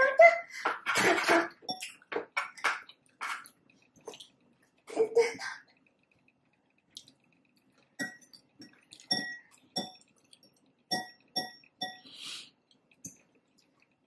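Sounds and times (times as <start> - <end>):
utensil clinking on glass bowl: 9.0 - 10.0, 10.9 - 12.0.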